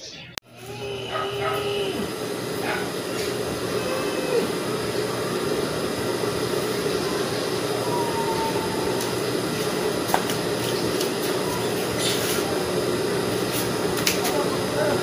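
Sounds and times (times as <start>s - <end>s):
electric motor hum: 0.5s - 15.0s.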